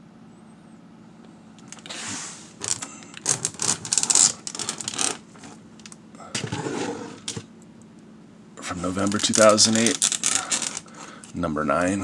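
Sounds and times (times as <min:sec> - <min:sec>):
plastic bags crinkling: 0:02.6 - 0:06.0, 0:08.8 - 0:11.3.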